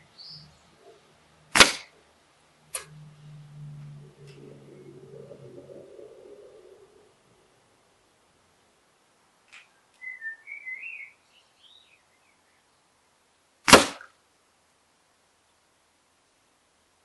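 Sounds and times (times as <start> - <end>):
small bird singing: 0.0 - 1.1, 9.6 - 12.9
air rifle shot: 1.5 - 1.9, 13.7 - 14.1.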